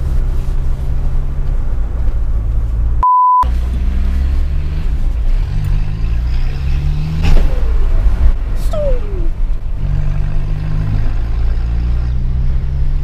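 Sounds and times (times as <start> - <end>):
high-pitched bleep tone: 3.0 - 3.5.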